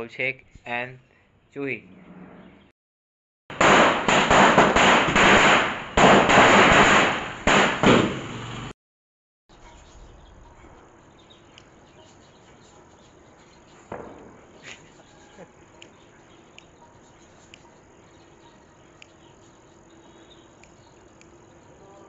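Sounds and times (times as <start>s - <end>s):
firecracker bangs: 3.5s - 8.7s, 13.8s - 14.7s
firecracker crackling and popping: 3.5s - 8.7s, 13.8s - 15.0s.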